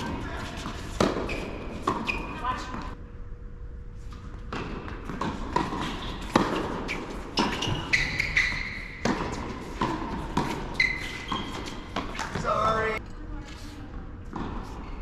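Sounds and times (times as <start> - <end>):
shoes squeaking on hard court: 0.0 - 2.9, 4.4 - 13.0
tennis balls bouncing on court: 0.0 - 3.0, 4.4 - 12.7, 14.2 - 15.0
tennis balls struck by racquets: 0.0 - 3.0, 4.4 - 12.6.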